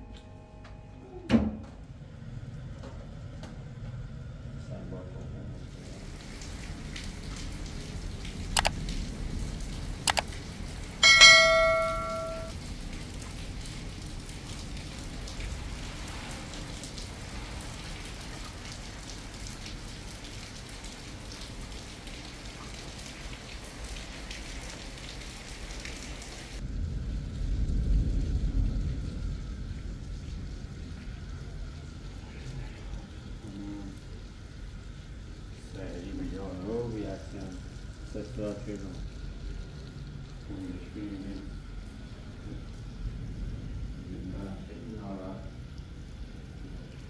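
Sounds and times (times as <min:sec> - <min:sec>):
rain falling: 0:05.2 - 0:47.0
sharp clicks: 0:10.1 - 0:10.3
loud metallic ring: 0:11.0 - 0:12.5.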